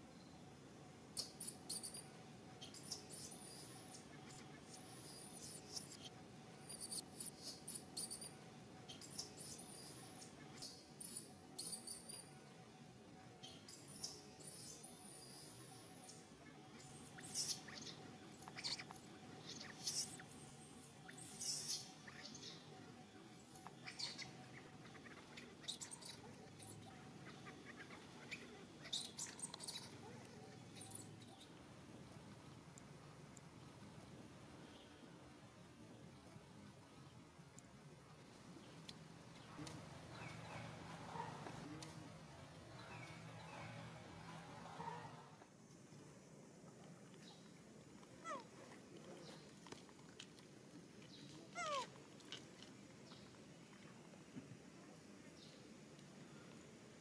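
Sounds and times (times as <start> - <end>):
infant monkey squealing: 19.5 - 20.2.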